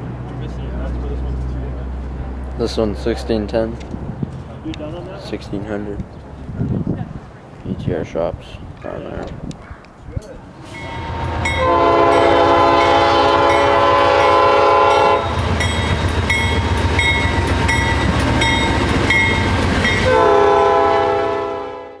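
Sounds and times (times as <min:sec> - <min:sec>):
locomotive engine rumbling: 0:00.0 - 0:21.8
locomotive horn: 0:10.7 - 0:15.6, 0:19.9 - 0:22.0.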